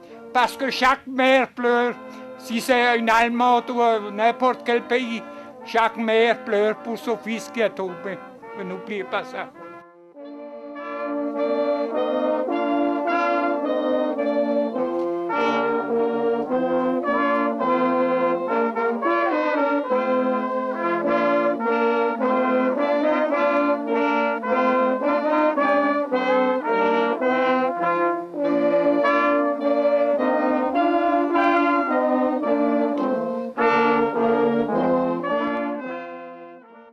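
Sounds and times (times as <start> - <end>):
talking: 0.0 - 9.7
brass band playing: 0.0 - 36.9.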